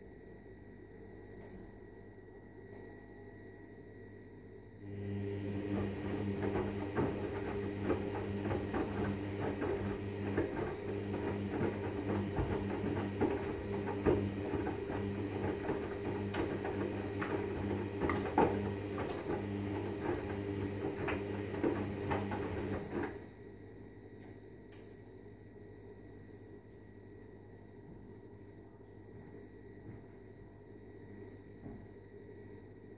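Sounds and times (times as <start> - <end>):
washing machine motor hum: 4.8 - 23.7
washing machine drum tumbling: 5.4 - 23.2
laundry splashing and knocking: 5.7 - 23.0.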